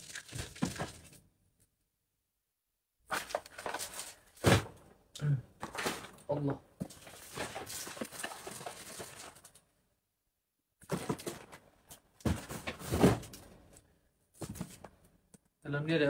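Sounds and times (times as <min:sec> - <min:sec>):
packaging rustling: 0:03.1 - 0:04.4, 0:06.9 - 0:09.6
boxes knocking: 0:12.2 - 0:13.3.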